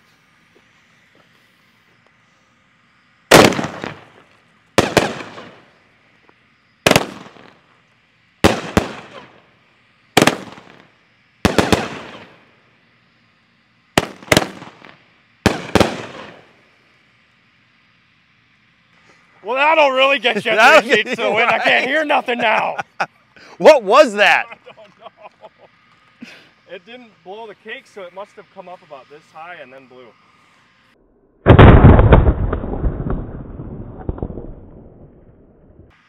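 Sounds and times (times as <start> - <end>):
fireworks loud reports: 3.3 - 5.8, 6.8 - 7.7, 8.4 - 9.5, 10.1 - 12.5, 13.9 - 16.8, 19.0 - 24.8, 31.4 - 36.0.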